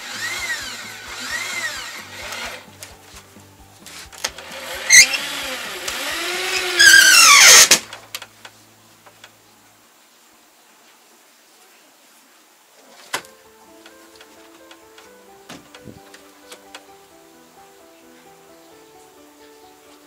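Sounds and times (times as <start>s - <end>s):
drill-driver motor whining: 0.0s - 2.7s, 4.2s - 7.8s.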